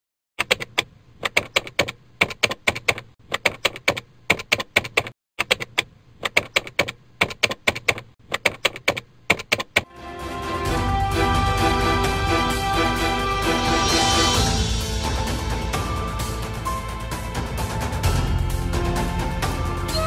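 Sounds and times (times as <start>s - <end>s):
keyboard typing clicks: 0.4s - 9.9s.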